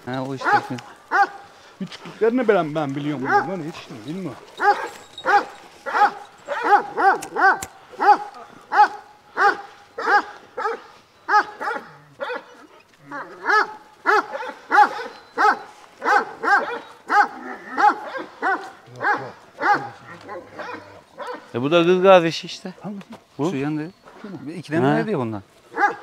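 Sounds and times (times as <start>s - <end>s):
dog barking: 0.3s - 1.5s, 3.2s - 3.8s, 4.6s - 21.6s, 25.7s - 26.0s.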